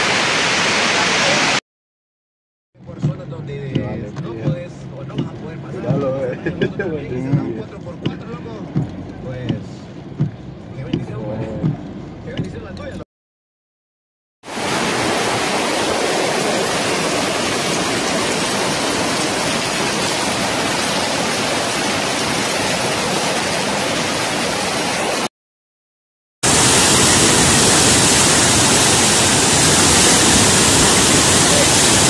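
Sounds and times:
floodwater rushing down street: 0.0s - 1.6s, 2.8s - 12.4s, 14.4s - 25.3s, 26.4s - 32.0s
waterfall rushing: 0.0s - 1.6s, 14.5s - 25.3s, 26.4s - 32.0s.

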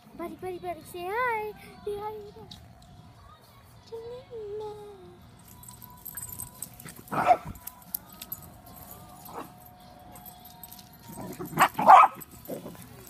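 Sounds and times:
puppies barking: 6.9s - 7.7s, 11.0s - 13.0s.

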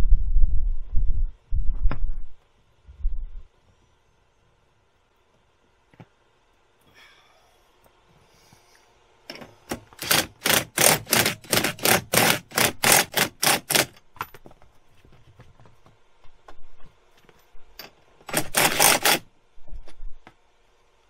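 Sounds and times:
cordless driver driving a bolt: 9.3s - 14.0s, 18.3s - 19.2s.

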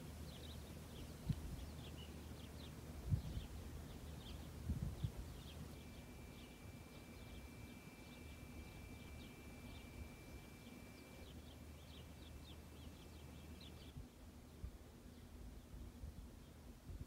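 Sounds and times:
low steady background hum: 0.0s - 17.0s
faint bird chirps: 0.2s - 14.0s
thin high tone: 5.8s - 13.8s.

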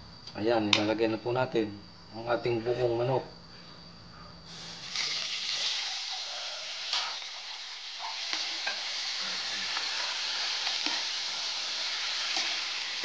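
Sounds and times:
chicken sizzling in hot oil: 4.5s - 13.0s.

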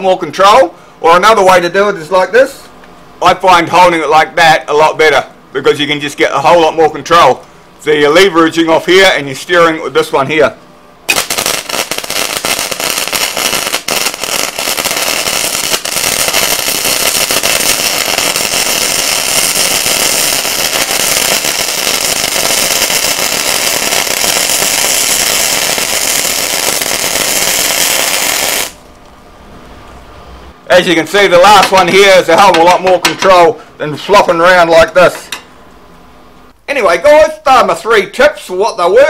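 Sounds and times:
welding arc crackling: 11.1s - 28.9s.

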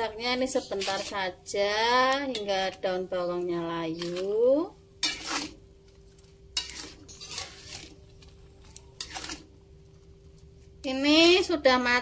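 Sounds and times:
metal spatula scraping a wok: 0.3s - 9.6s.

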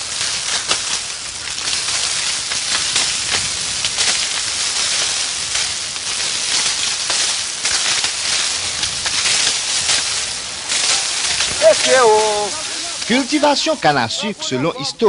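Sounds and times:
cane stalks rustling and crackling: 0.0s - 15.0s.

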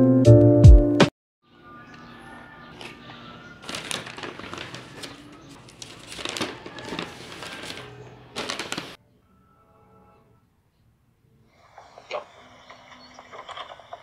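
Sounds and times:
paper bag rustling: 2.7s - 9.0s, 12.7s - 14.0s.

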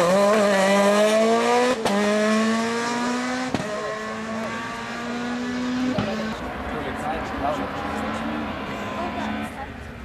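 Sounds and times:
rally car engine accelerating: 0.0s - 9.6s.

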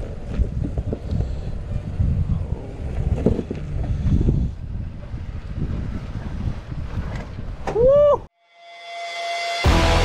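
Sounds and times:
engine and tyres rumbling over rocks: 0.0s - 7.6s
wind buffeting microphone: 0.0s - 8.3s.

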